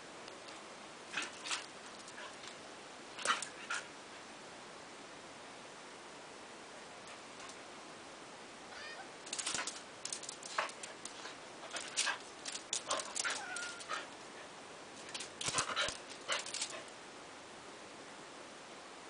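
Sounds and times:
dog whining: 13.0s - 14.1s
dog whimpering and yipping: 13.2s - 14.1s.

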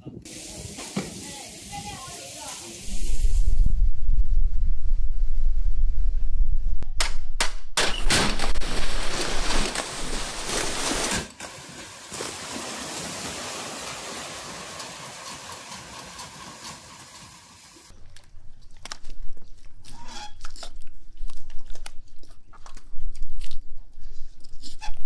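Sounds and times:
wet rushing hiss: 0.2s - 3.6s
fish slapping and flapping: 8.1s - 17.2s.

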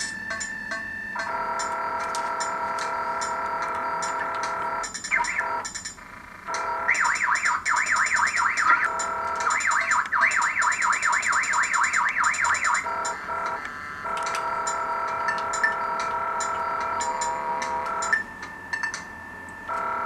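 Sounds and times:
buzzing electronic drone: 0.0s - 20.0s
fast electronic warble: 3.9s - 5.7s, 6.6s - 18.2s.

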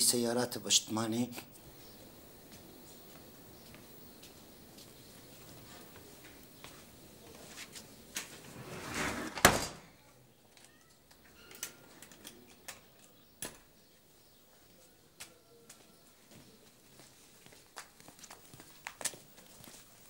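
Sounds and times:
door banging shut: 8.6s - 10.0s.

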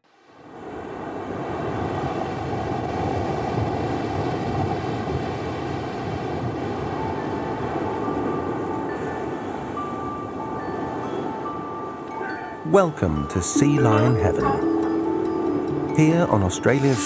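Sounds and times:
faint chime-like music tones: 7.0s - 17.0s.

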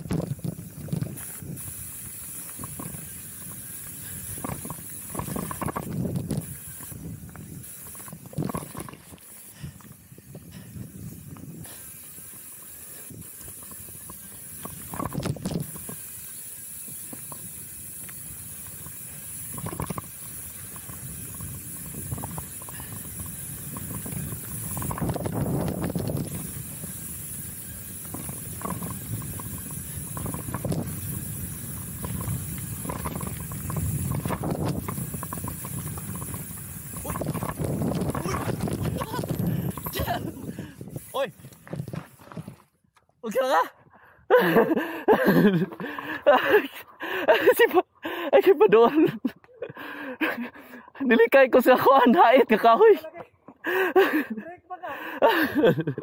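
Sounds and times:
bike tyre and wind hiss: 0.0s - 42.8s, 43.6s - 56.0s
bike clattering and rattling: 0.0s - 43.1s.

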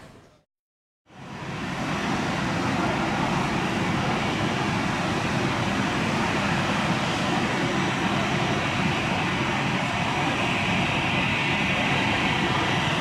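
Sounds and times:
jet engines rumbling: 1.1s - 13.0s.

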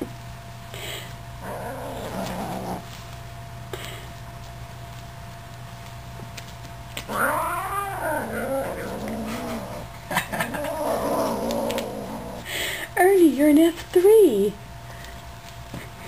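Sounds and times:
kitten growling: 1.4s - 2.9s, 7.0s - 12.5s.

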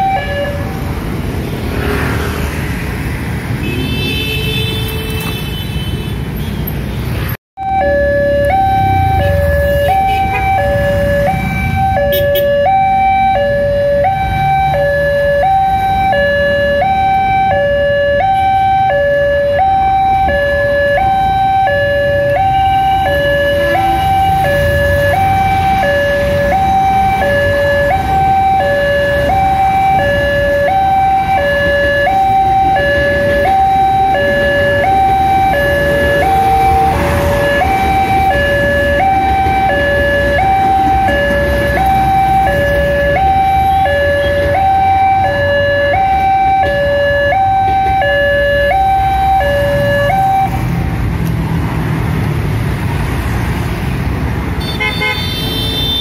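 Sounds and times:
level crossing two-tone alarm: 0.0s - 0.6s, 7.6s - 50.6s
road traffic rumble: 0.0s - 56.0s.

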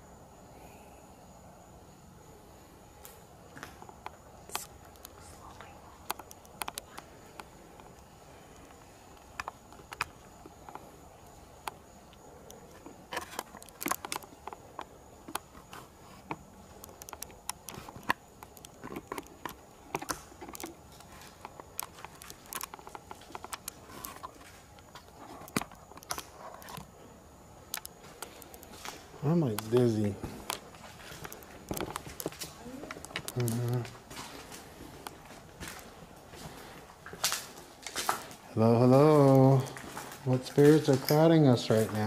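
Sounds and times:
footsteps on debris: 18.8s - 26.2s, 28.0s - 38.4s, 39.1s - 42.0s.

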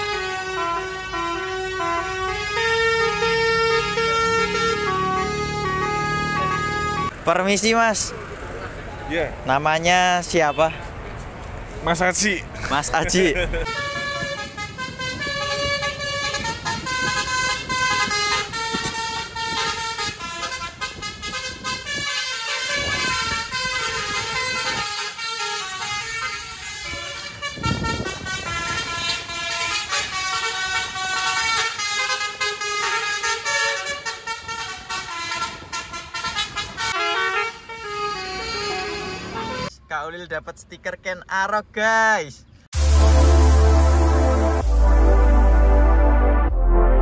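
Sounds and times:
musical air horn melody: 0.0s - 7.1s, 13.6s - 39.7s, 42.8s - 47.0s.

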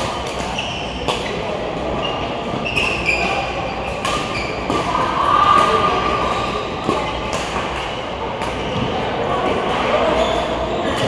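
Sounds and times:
racket hitting shuttlecock: 0.0s - 1.4s, 2.7s - 8.7s
shoes squeaking on court floor: 0.1s - 7.3s, 9.9s - 11.0s
faint voices: 0.3s - 11.0s.

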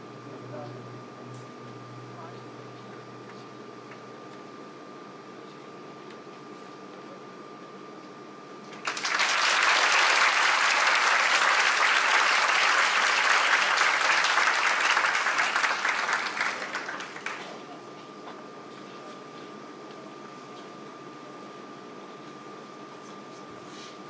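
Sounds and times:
audience applauding: 8.7s - 17.6s.

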